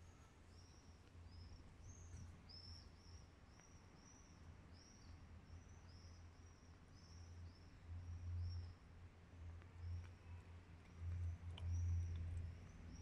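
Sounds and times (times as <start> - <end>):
small bird chirping: 0.0 - 8.8
low steady hum: 0.0 - 13.0.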